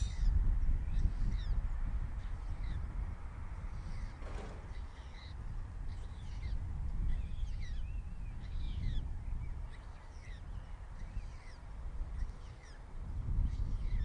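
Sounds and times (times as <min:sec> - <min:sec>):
birds chirping: 0:03.6 - 0:14.0.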